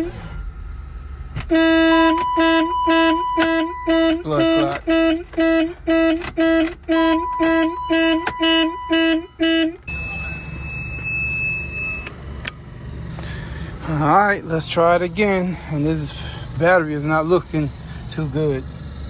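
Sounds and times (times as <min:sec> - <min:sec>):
car horn pulsing: 0:01.4 - 0:12.1
steady high tone: 0:07.0 - 0:12.2.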